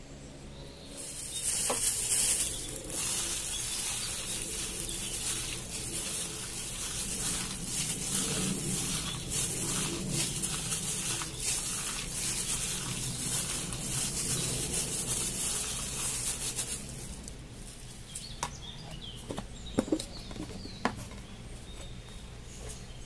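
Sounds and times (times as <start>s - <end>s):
plastic glove crinkling: 1.0s - 17.9s
gloved hand squishing wet meat: 1.3s - 17.4s.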